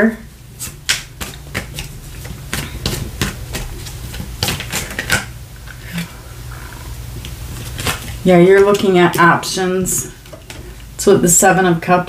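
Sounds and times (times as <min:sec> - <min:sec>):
cards being shuffled: 0:00.6 - 0:06.1, 0:07.2 - 0:09.3.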